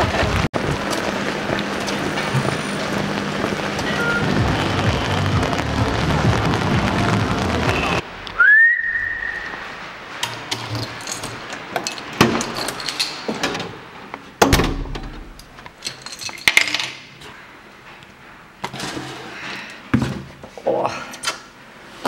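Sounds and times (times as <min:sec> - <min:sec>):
short rising whistle: 0:08.4 - 0:09.7.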